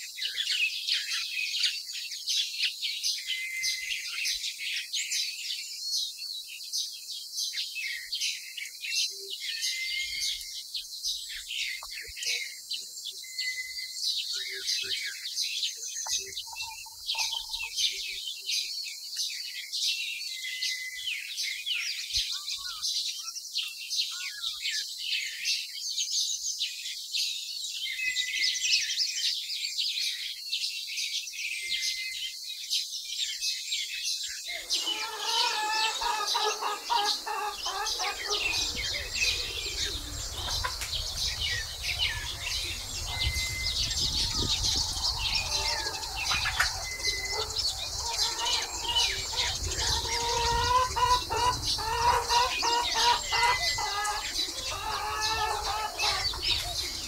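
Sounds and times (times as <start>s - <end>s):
small birds chirping: 0.0s - 57.0s
lower fuller bird calls: 7.4s - 26.4s, 31.2s - 57.0s.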